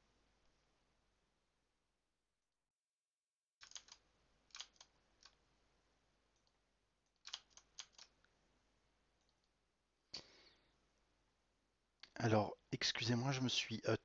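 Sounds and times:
computer mouse clicks: 3.6s - 5.4s, 6.4s - 8.3s.

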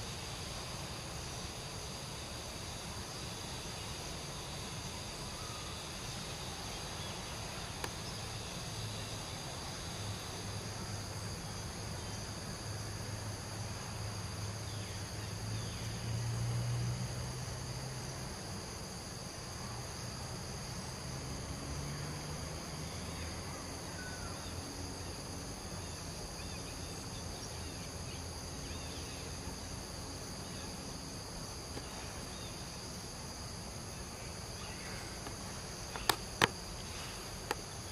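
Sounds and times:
insect drone: 0.0s - 37.9s.

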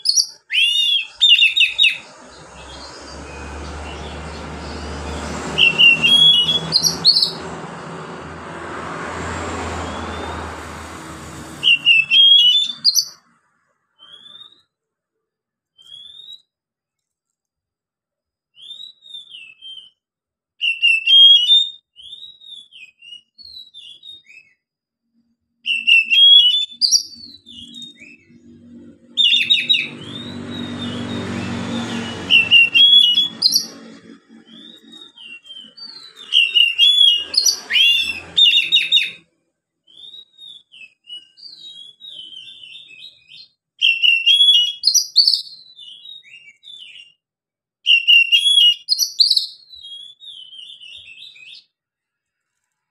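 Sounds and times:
bird singing whistled phrases: 0.0s - 2.1s, 5.5s - 7.5s, 11.6s - 13.2s, 15.8s - 16.5s, 20.6s - 24.6s, 25.6s - 28.4s, 29.1s - 33.9s, 34.5s - 39.2s, 39.9s - 47.2s, 47.9s - 51.7s
soft bird twittering: 0.0s - 8.0s, 11.6s - 13.3s, 25.8s - 39.2s.

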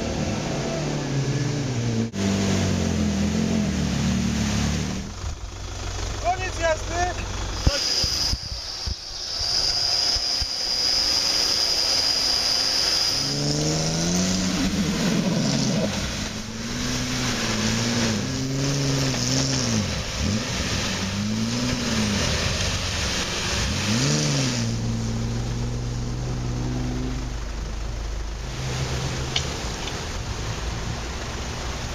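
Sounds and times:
off-road engines revving: 0.0s - 31.9s
thin high whine: 7.6s - 19.5s.

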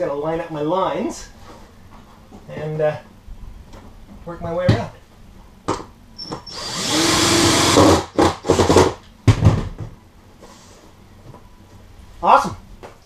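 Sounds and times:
cordless drill driving screws: 6.3s - 8.8s.

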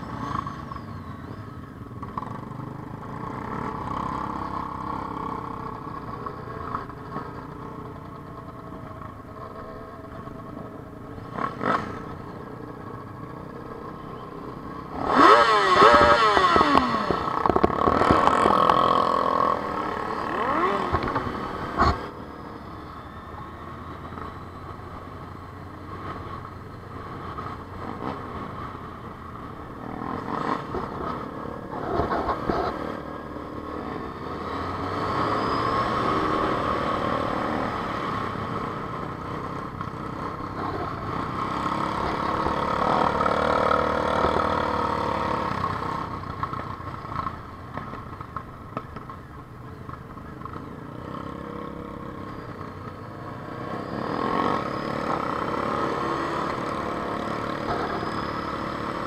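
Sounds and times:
motorcycle engines revving: 0.0s - 59.0s.

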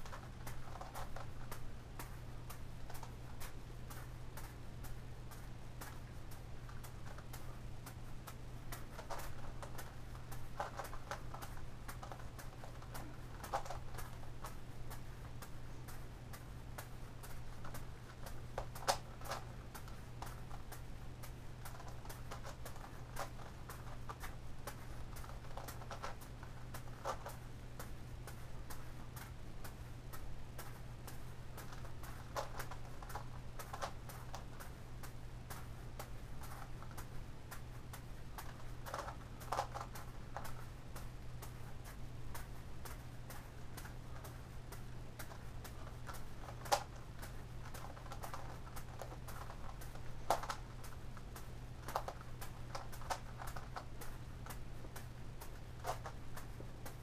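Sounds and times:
juggling ball soft taps: 0.0s - 57.0s
steady low hum: 0.0s - 57.0s
plastic puzzle clicking: 21.6s - 26.2s, 38.4s - 40.6s, 45.2s - 51.0s.

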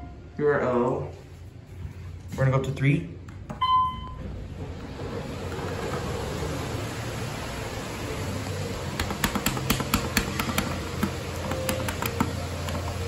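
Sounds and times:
elevator button clicks: 9.0s - 12.8s.

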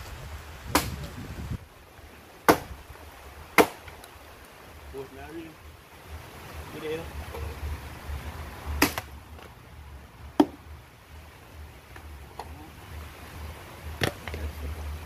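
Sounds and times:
low steady rumble: 0.0s - 15.0s
dry sticks cracking: 3.6s - 4.6s.

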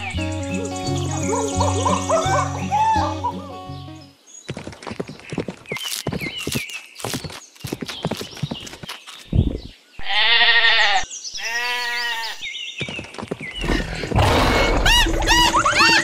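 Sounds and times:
farm animal bleating: 10.0s - 12.4s.

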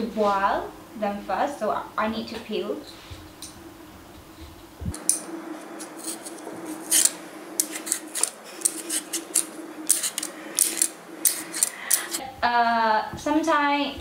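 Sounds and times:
peeler scraping potato skin: 5.1s - 12.2s.

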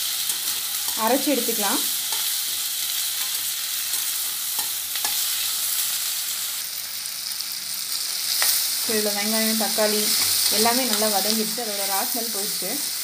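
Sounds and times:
spoon scraping a pan: 0.0s - 5.8s
vegetables sizzling in oil: 0.0s - 13.0s.

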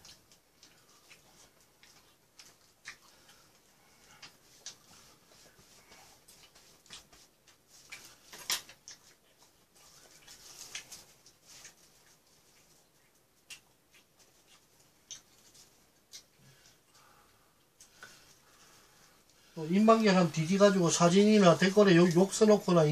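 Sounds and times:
chewing and mouth smacks: 0.0s - 16.9s.

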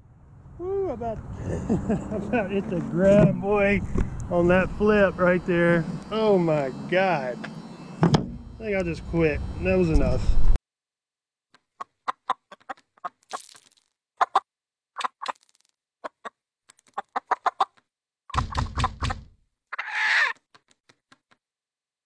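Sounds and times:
heavy thump: 8.0s - 8.5s
cartoon rooster clucks: 11.8s - 13.2s, 14.2s - 14.4s, 16.0s - 16.3s, 17.0s - 17.8s, 18.4s - 20.4s.

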